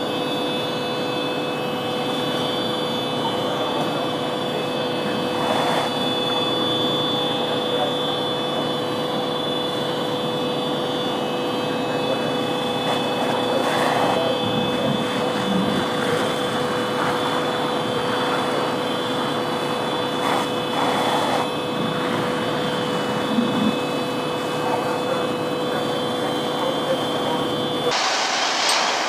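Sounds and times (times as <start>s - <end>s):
fire engine pump droning: 0.0s - 29.0s
water streams hissing: 4.8s - 6.8s, 12.2s - 25.0s.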